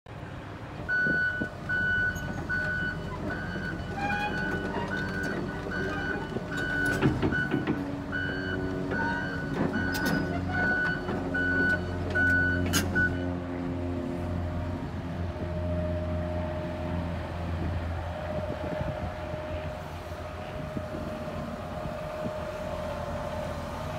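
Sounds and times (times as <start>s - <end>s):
excavator diesel engine humming: 0.1s - 23.9s.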